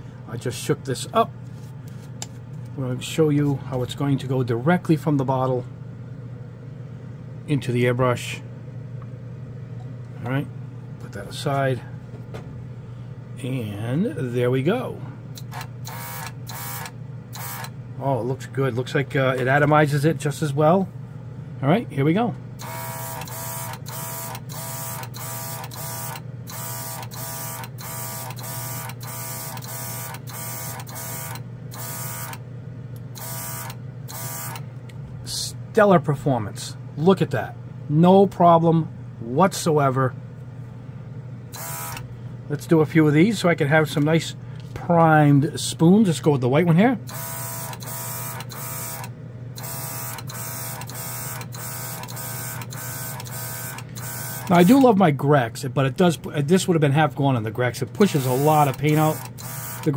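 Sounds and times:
air compressor humming: 0:00.0 - 0:08.6, 0:09.5 - 0:55.2, 0:56.3 - 0:59.9
air compressor pulsing: 0:15.3 - 0:17.7, 0:22.6 - 0:32.4, 0:33.1 - 0:34.6, 0:41.5 - 0:42.2, 0:47.1 - 0:54.8, 0:58.0 - 0:59.9.

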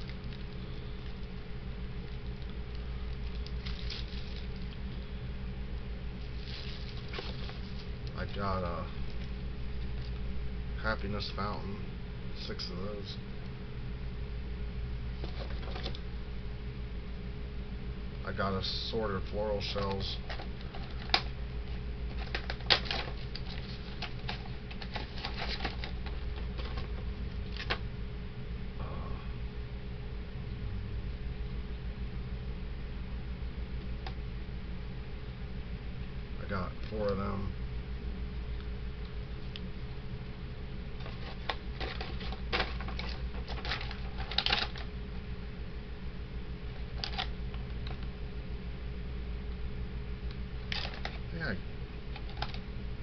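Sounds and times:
steady low hum: 0:00.0 - 0:53.0
cardboard tubes clicking and rustling: 0:15.2 - 0:16.0, 0:19.6 - 0:27.8, 0:41.0 - 0:44.9.

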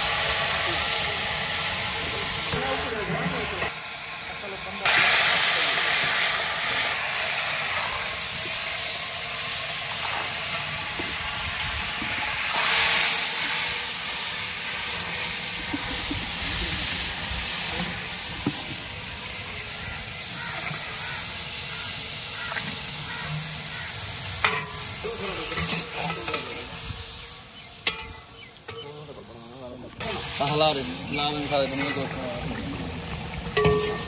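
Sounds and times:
food sizzling in a metal pot: 0:00.0 - 0:34.0
metal spatula clanking on pot: 0:24.4 - 0:24.8, 0:27.8 - 0:29.0, 0:33.5 - 0:34.0.

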